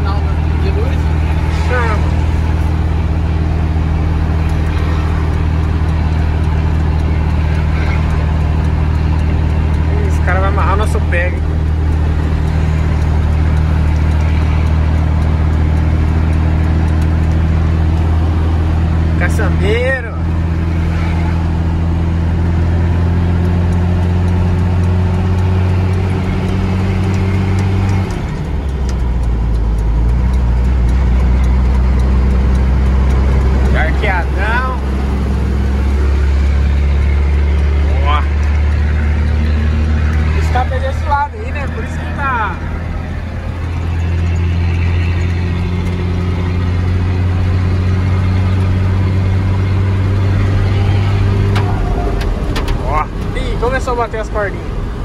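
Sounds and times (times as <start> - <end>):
diesel truck engine droning: 0.0 - 55.0
road noise: 0.0 - 55.0.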